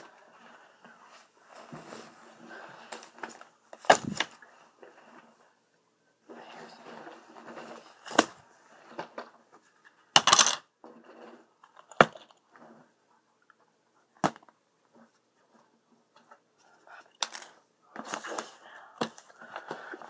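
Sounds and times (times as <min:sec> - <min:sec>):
books clattering: 0:01.6 - 0:05.3, 0:06.7 - 0:12.4, 0:17.2 - 0:20.0
soft paper rustling: 0:14.9 - 0:20.0.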